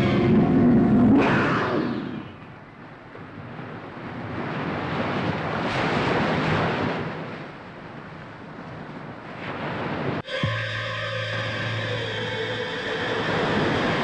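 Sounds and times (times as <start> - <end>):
ocean surf breaking on beach: 2.1 - 14.0.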